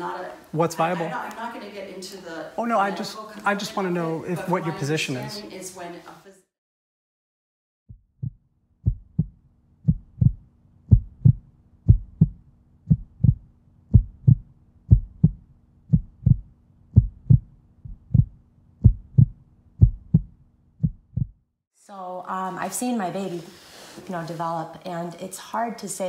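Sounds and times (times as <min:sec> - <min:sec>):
heartbeat thumps: 0:07.9 - 0:21.4.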